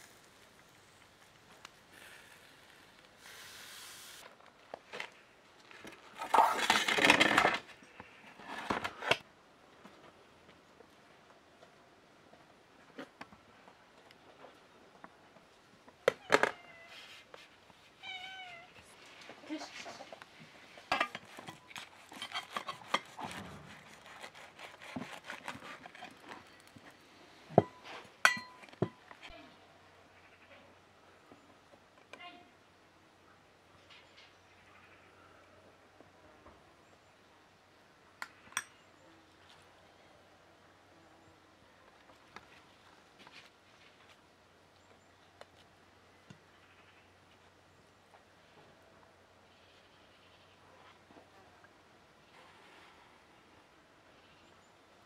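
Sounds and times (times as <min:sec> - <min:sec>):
metal tray scraping stone: 0:20.9 - 0:24.4
knife sawing through bread crust: 0:21.3 - 0:26.3.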